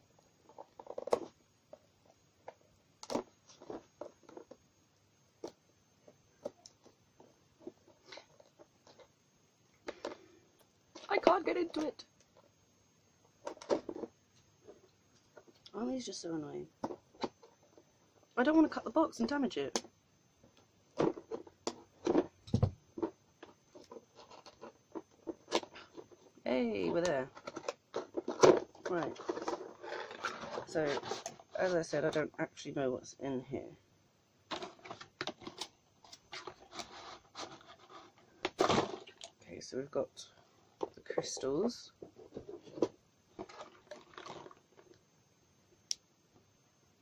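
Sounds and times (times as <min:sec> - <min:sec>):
dull knock on box: 0:22.5 - 0:22.8.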